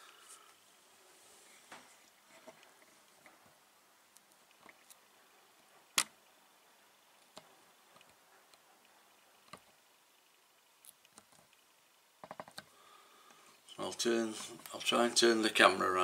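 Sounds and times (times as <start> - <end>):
small clicks and taps: 12.2 - 12.7.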